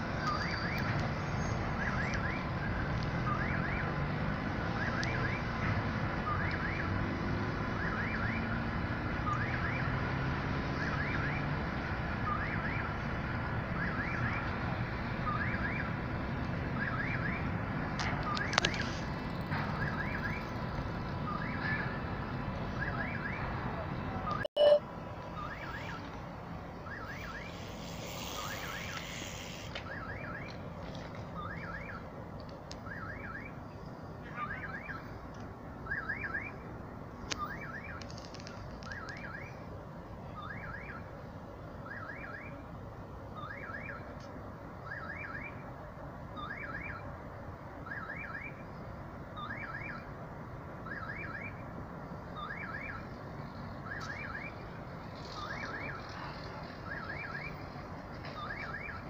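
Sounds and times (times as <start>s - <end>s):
crossing signal electronic chirp: 24.4s - 24.8s.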